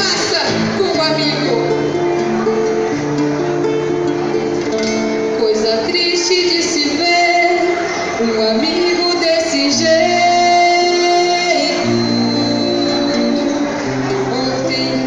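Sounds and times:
woman singing through microphone: 0.0 - 1.8, 5.3 - 15.0
acoustic guitar: 0.0 - 15.0.

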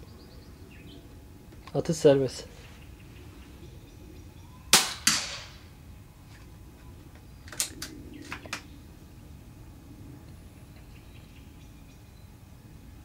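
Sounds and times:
rifle shot: 4.7 - 5.7
sharp crack: 4.7 - 5.8.

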